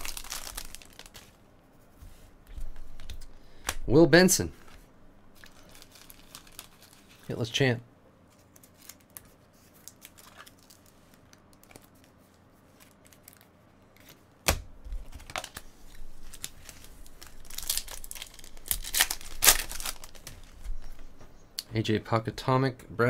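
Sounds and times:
foil wrapper crinkling and tearing: 0.0s - 1.4s, 5.4s - 7.4s, 8.4s - 12.1s, 15.0s - 20.6s.

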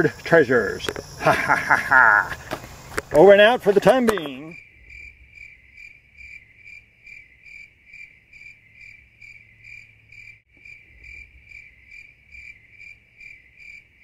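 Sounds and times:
crickets chirping: 0.0s - 14.0s.

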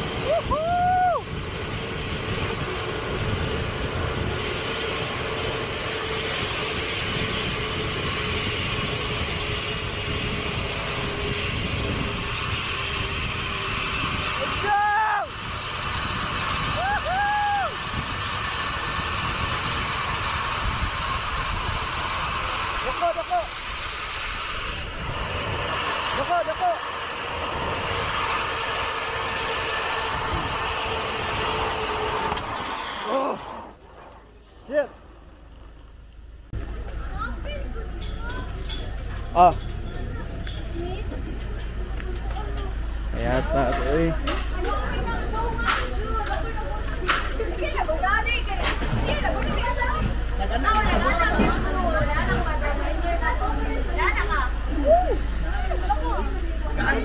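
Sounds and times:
rushing wind: 0.0s - 36.6s
faint whining of pulleys: 0.0s - 57.0s.

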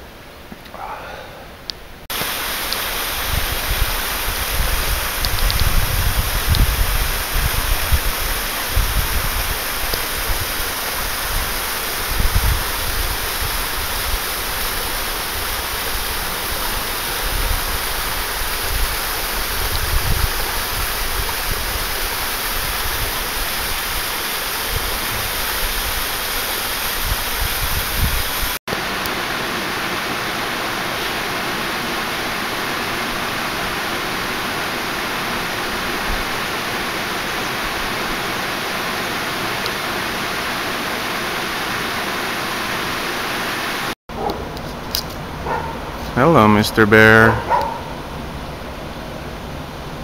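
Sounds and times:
water rushing over rocks: 2.1s - 44.0s
wind buffeting microphone: 3.1s - 14.3s, 15.9s - 26.2s, 26.9s - 28.6s.

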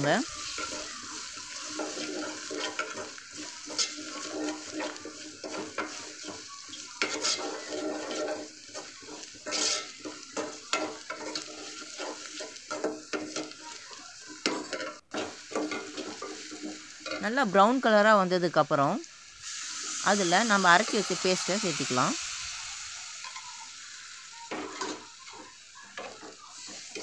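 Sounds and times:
onions sizzling in oil: 0.0s - 27.0s
metal spoon scraping pot: 0.4s - 13.5s.

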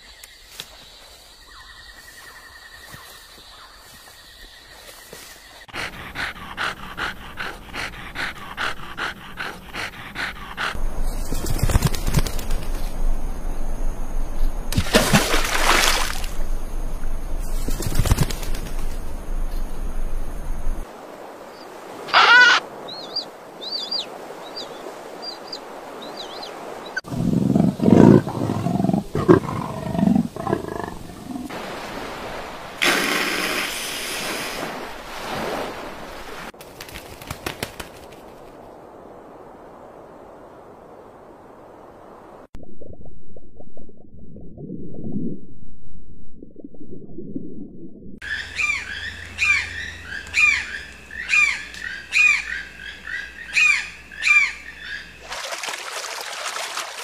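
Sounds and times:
animal calls: 22.1s - 24.0s, 48.2s - 55.1s.

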